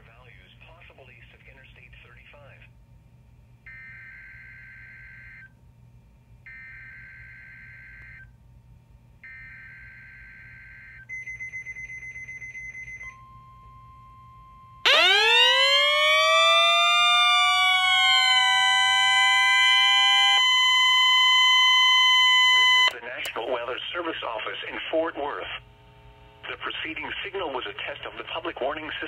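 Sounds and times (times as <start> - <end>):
siren sweeping up in pitch: 14.8 - 23.0
warning alarm tone: 14.8 - 23.0.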